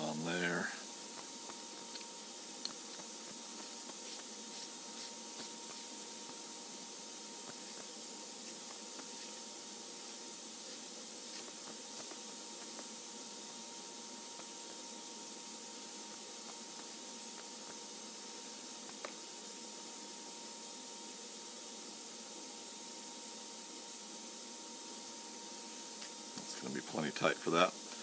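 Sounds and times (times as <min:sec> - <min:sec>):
background hiss: 0:00.0 - 0:28.0
faint steady whine: 0:00.0 - 0:28.0.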